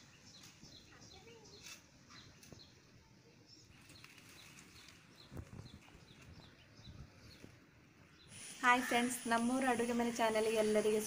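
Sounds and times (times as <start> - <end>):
faint bird chirping: 0.0 - 11.0
leaves rustling: 0.0 - 11.0.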